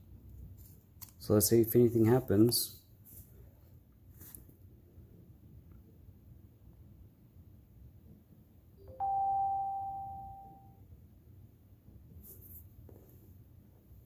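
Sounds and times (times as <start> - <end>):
electronic alert chime: 8.9 - 10.8.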